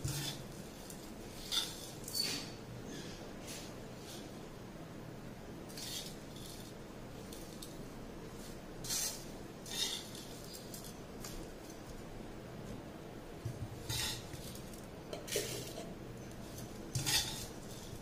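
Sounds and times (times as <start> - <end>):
steel spoon scraping a pan: 0.0 - 2.6, 5.7 - 7.7, 8.8 - 11.0, 13.8 - 18.0.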